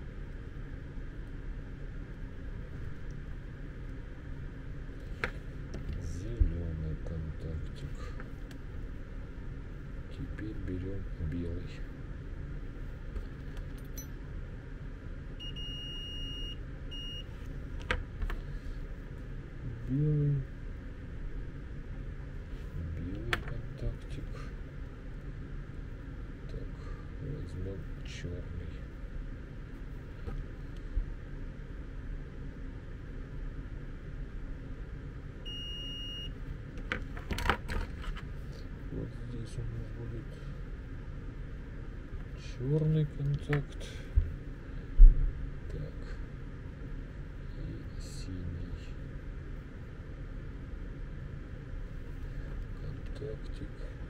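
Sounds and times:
multimeter continuity beeps: 13.8s - 14.2s, 15.4s - 17.4s, 35.4s - 36.4s.

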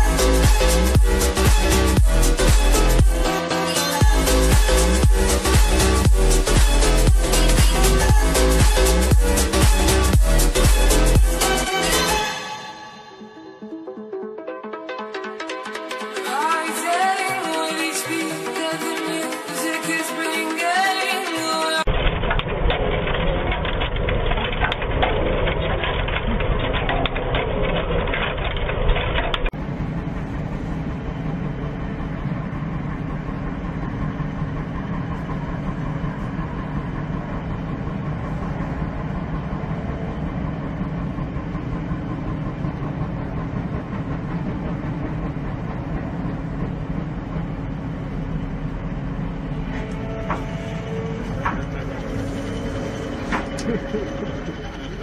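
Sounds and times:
heavy vehicle engine: 0.0s - 13.1s, 16.2s - 55.0s
constant hum: 21.8s - 55.0s.

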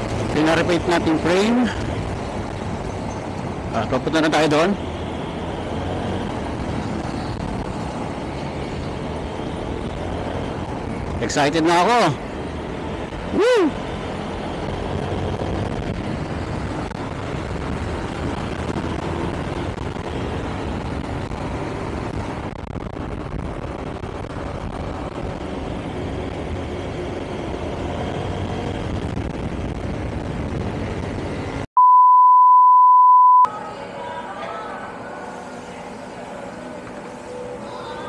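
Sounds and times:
scooter engine and road noise: 0.0s - 31.7s, 33.5s - 38.0s
test-tone beep: 31.8s - 33.5s.

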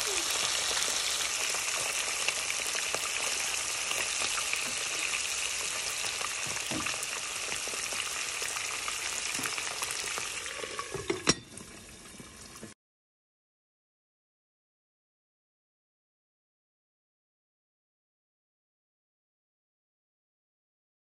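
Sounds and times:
chicken frying in hot oil: 0.0s - 12.8s
glass lid clinking onto pan: 10.7s - 11.7s.

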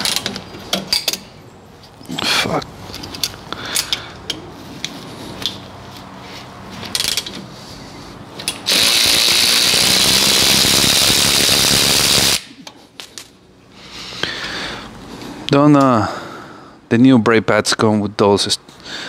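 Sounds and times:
light metal clicks of tools: 2.9s - 5.6s
cordless power ratchet running: 8.6s - 12.4s.

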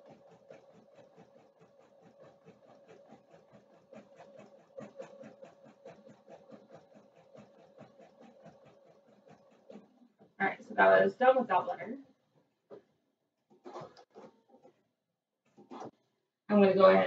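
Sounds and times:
embroidery machine needle strokes: 0.0s - 11.4s
motor hum: 0.0s - 14.8s.

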